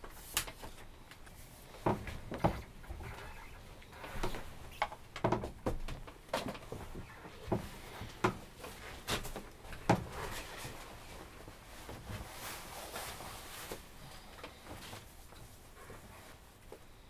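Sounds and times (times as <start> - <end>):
cloth rustling: 6.4 - 17.0.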